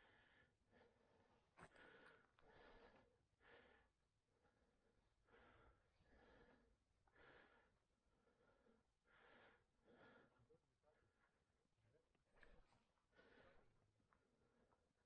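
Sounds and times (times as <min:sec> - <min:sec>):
faint heavy breathing: 0:00.0 - 0:11.4, 0:12.4 - 0:15.0.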